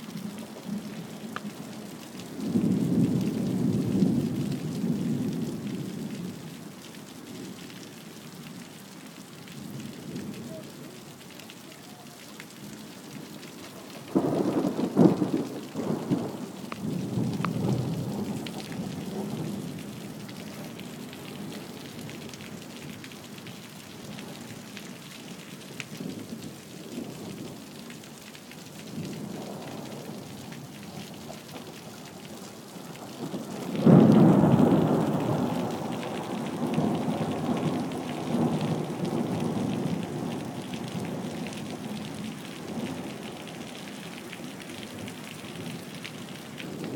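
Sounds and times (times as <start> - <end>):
rain falling: 0.0 - 46.9
thunder crackling and rumbling: 13.8 - 22.9, 32.8 - 43.7.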